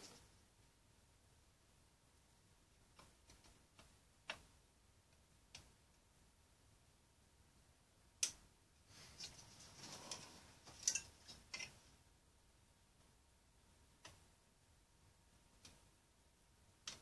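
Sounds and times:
soft rubbing of plastic: 0:08.9 - 0:11.8.

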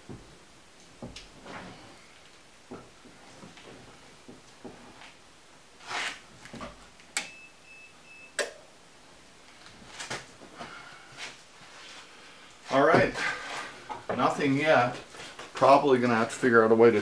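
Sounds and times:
broken high beep: 0:07.2 - 0:08.4.

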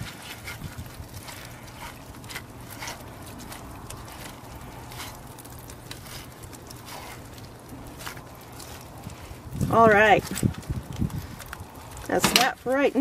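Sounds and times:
metal spoon scraping sludge: 0:00.0 - 0:10.4
steady low hum: 0:00.0 - 0:13.0.

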